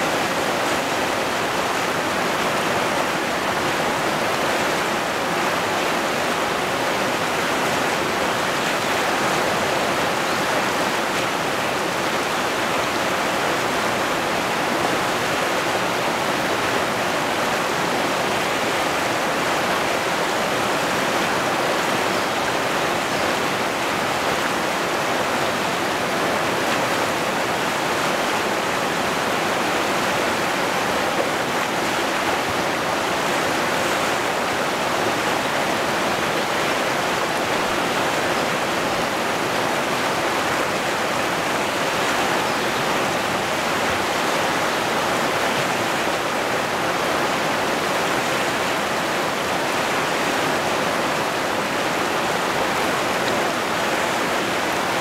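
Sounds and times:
river rapids rushing over boulders: 0:00.0 - 0:55.0.

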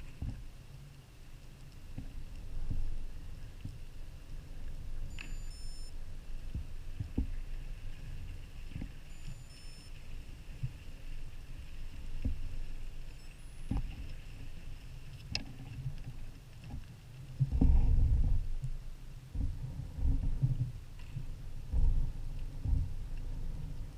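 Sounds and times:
low underwater rumble: 0:00.0 - 0:23.9
scattered clicks: 0:05.1 - 0:05.9
short high electronic beeps: 0:05.1 - 0:05.9, 0:09.1 - 0:10.0, 0:13.2 - 0:13.8.

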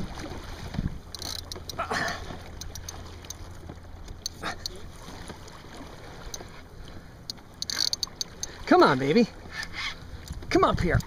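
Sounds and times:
water lapping: 0:00.0 - 0:11.0
small clicks and knocks: 0:01.1 - 0:01.8, 0:02.5 - 0:04.4, 0:07.3 - 0:08.5.

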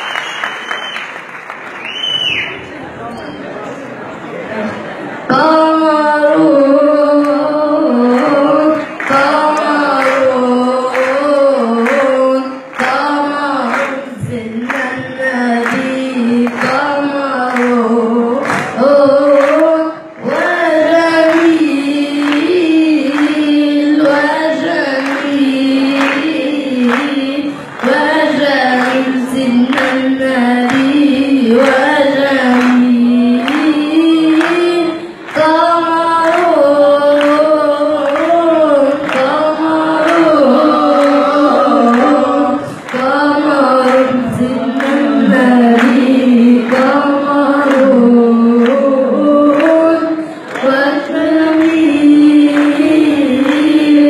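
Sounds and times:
boy singing religious chant: 0:05.3 - 0:54.0
short breaths: 0:50.2 - 0:50.5.

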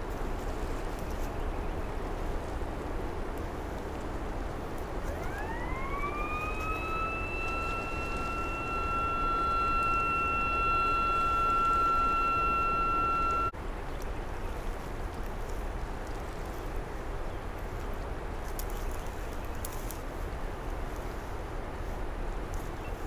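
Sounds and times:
steady high-pitched tone: 0:05.0 - 0:13.6.

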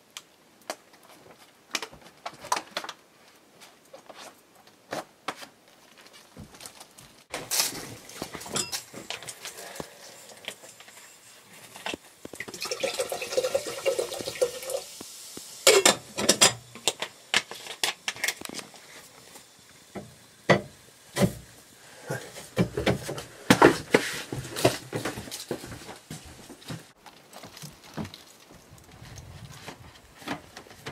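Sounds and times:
rushing pouring sound: 0:07.3 - 0:17.7
sharp knocks and metal clatters: 0:15.7 - 0:18.4.

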